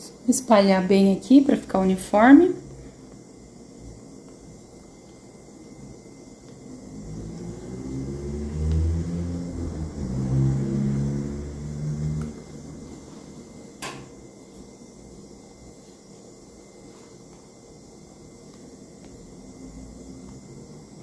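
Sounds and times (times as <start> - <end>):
vehicle engine passing by: 6.8 - 13.3.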